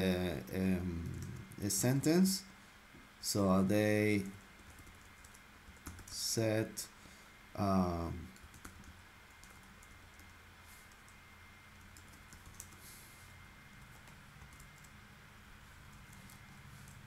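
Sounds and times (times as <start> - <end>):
computer keyboard typing: 0.9 - 1.6, 4.6 - 6.2, 8.4 - 11.2, 11.8 - 12.8, 13.7 - 15.0, 15.9 - 17.0.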